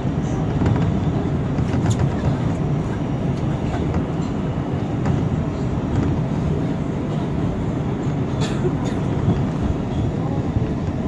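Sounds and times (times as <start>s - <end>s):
rumble of train wheels on rail: 0.0s - 11.0s.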